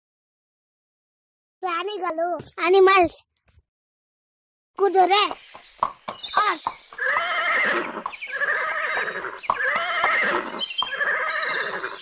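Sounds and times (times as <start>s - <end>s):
horse whinnying: 7.0s - 12.0s.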